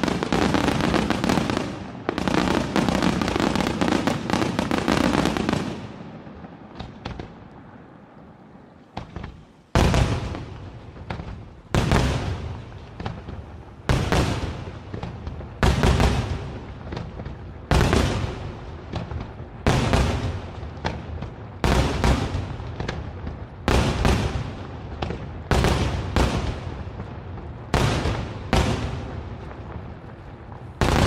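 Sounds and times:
fireworks bursting with loud bangs: 0:00.0 - 0:07.9, 0:08.7 - 0:31.0.

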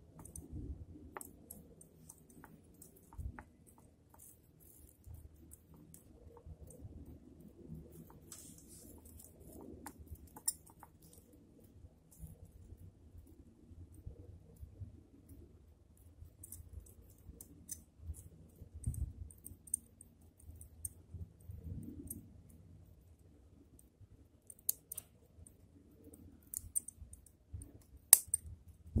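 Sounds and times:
small sharp tool clicks: 0:28.1 - 0:29.0.

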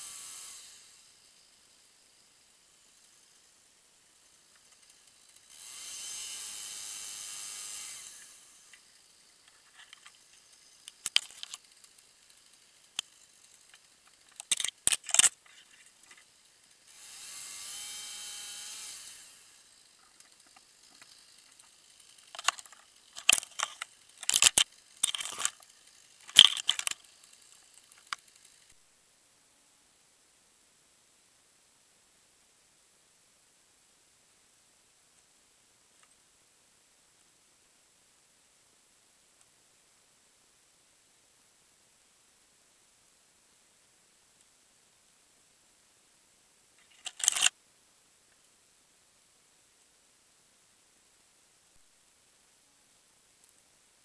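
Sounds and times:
twigs snapping: 0:14.3 - 0:15.4, 0:22.3 - 0:25.7.

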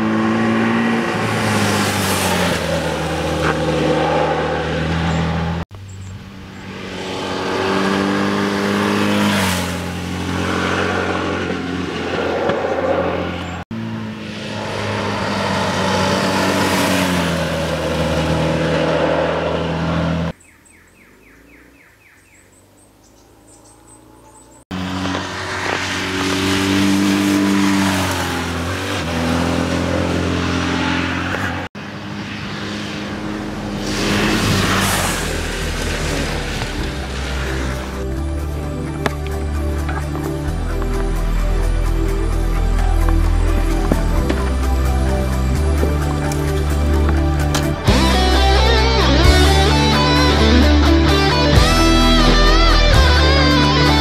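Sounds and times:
motorcycle engine revving: 0:00.0 - 0:54.0
faint birds chirping: 0:20.4 - 0:24.7.

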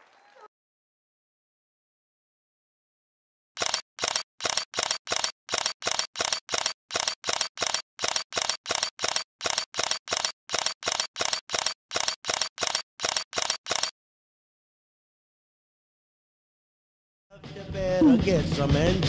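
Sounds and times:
camera shutter clicks: 0:03.6 - 0:13.9.

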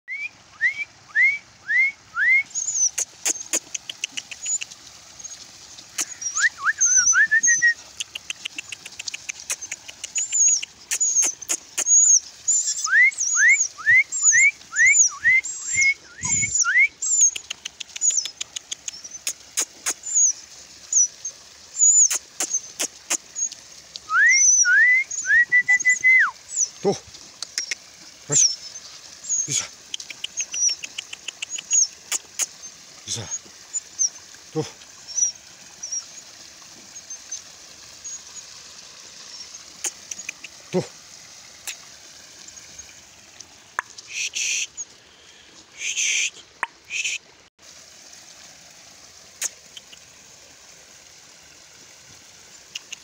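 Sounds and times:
rising whistled bird notes: 0:00.1 - 0:03.0, 0:06.1 - 0:07.8, 0:10.2 - 0:17.4, 0:24.1 - 0:26.7
birds chirping: 0:02.2 - 0:36.3.

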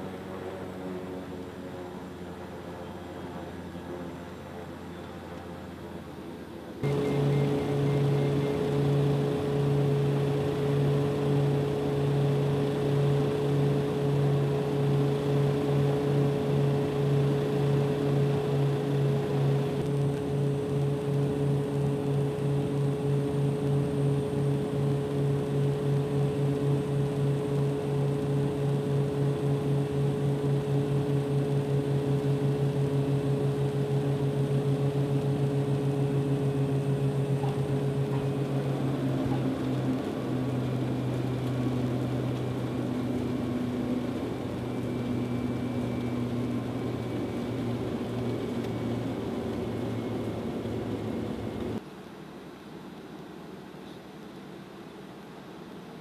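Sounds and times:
turboprop engines droning: 0:00.0 - 0:51.8.

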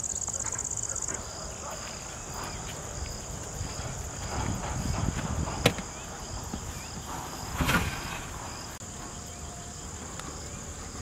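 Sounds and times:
crickets trilling: 0:00.0 - 0:11.0
scraping rustle: 0:03.6 - 0:08.8.

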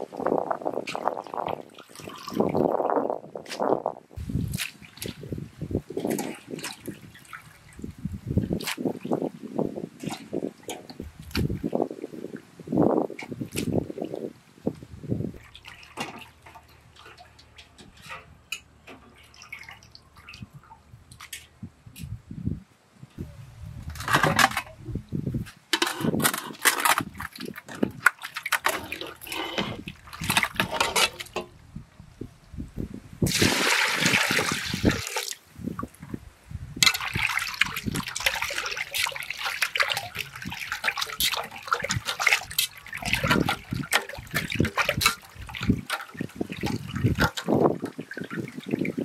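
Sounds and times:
water splashing in metal pot: 0:15.4 - 0:20.7, 0:25.8 - 0:31.6, 0:33.3 - 0:35.4, 0:36.8 - 0:49.0
water pouring: 0:25.8 - 0:31.6, 0:33.2 - 0:35.4, 0:36.8 - 0:49.0.

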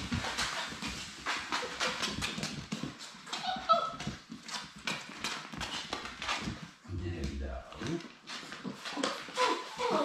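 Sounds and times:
puppy claws clicking on floor: 0:00.0 - 0:06.8, 0:07.7 - 0:10.0
high puppy cry: 0:03.3 - 0:04.2, 0:09.0 - 0:10.0.

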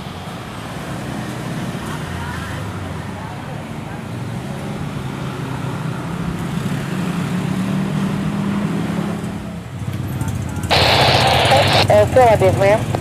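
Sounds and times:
jet airliner engines rumbling: 0:10.7 - 0:12.6.

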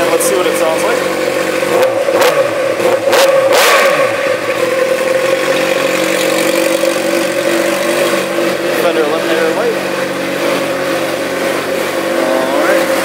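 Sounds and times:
motorcycle engine idling and revving: 0:00.0 - 0:13.0.

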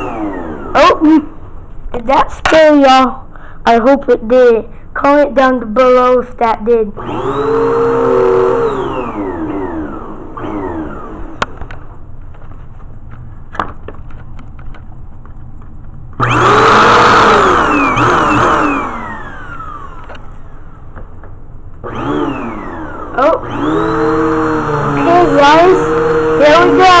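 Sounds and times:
vacuum cleaner motor: 0:00.0 - 0:01.3, 0:07.0 - 0:11.8, 0:16.2 - 0:20.8, 0:21.8 - 0:27.0.

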